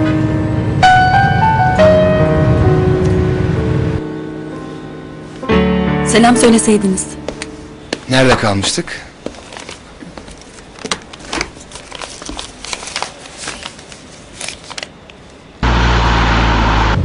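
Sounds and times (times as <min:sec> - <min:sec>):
paper rustling: 0:09.3 - 0:15.4.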